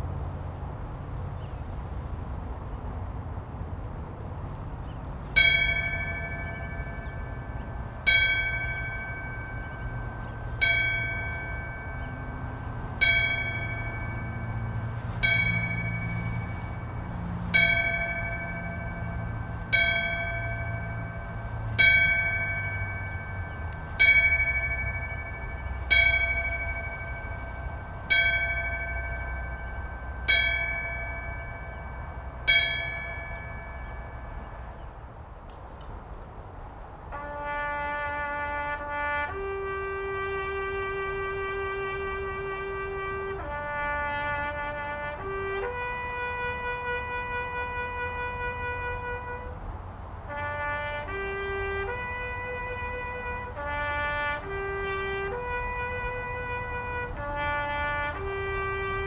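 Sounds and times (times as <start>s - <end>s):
bell tolling: 5.4s - 34.9s.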